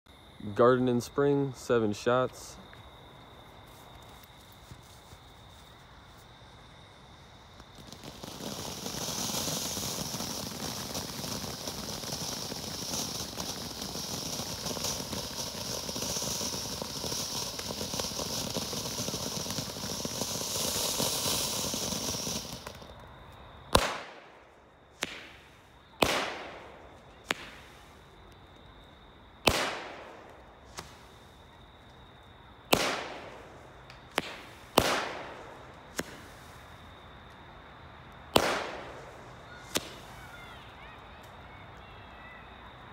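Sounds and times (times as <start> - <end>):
firework fountain hissing: 6.6 - 23.1, 23.7 - 28.2, 29.4 - 31.9, 32.6 - 37.0, 38.3 - 42.5
firework shots: 7.4 - 23.1, 23.7 - 28.4, 29.4 - 32.0, 32.6 - 36.9, 38.2 - 41.6.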